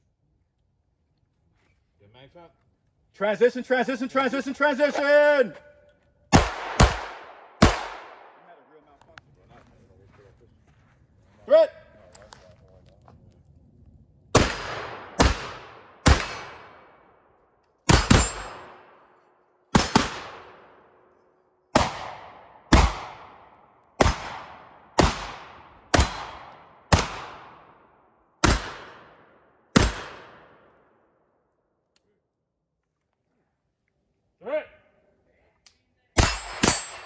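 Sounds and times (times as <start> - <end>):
rifle shots with echo: 6.3 - 8.7, 14.3 - 21.1, 21.7 - 31.2, 36.2 - 37.0.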